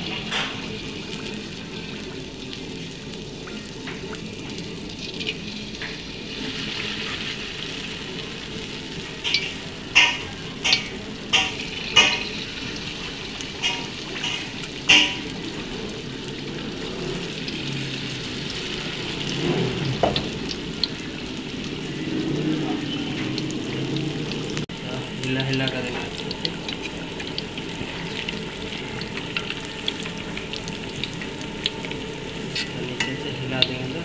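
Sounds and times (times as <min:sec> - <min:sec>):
battered food sizzling in oil: 0:00.0 - 0:34.0.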